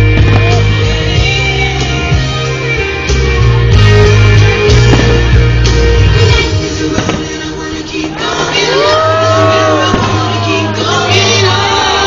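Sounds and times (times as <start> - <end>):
firework crack: 0.0 - 1.6, 4.7 - 8.7, 9.7 - 10.8
music: 0.0 - 12.0.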